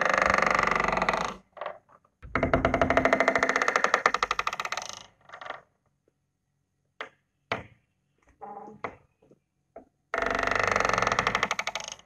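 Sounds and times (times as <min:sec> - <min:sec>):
wooden door creaking: 0:00.0 - 0:05.8, 0:08.4 - 0:09.1, 0:10.1 - 0:12.0.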